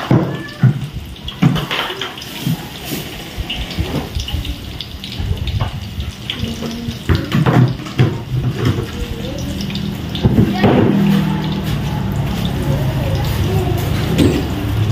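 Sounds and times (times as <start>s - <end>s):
knocks and clatter of handling: 0.0s - 3.1s, 13.9s - 14.8s
water running and splashing: 0.0s - 14.9s.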